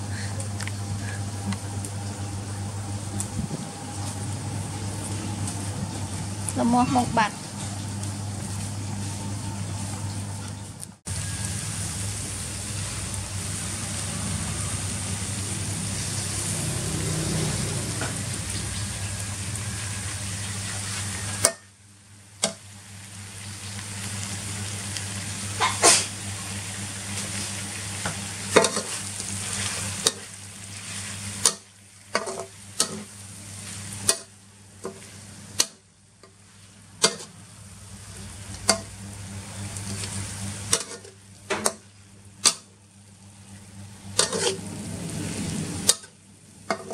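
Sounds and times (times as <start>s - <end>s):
low hum: 0.0s - 21.3s
food sizzling in wok: 11.1s - 46.9s
spatula scraping wok: 11.2s - 21.6s, 25.5s - 37.4s, 39.8s - 41.8s, 44.1s - 46.9s.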